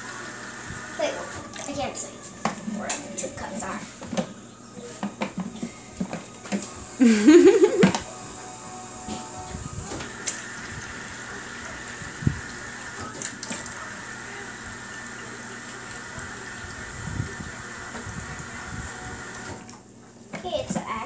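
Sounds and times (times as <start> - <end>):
water filling plastic cup: 1.5 - 1.8.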